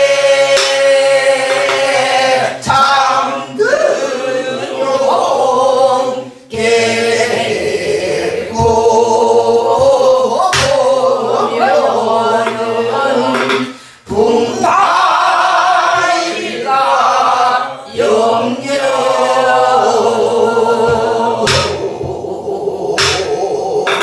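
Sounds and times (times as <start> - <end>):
group singing folk song: 0.0 - 24.0
barrel drum strokes: 12.4 - 13.8, 20.7 - 24.0.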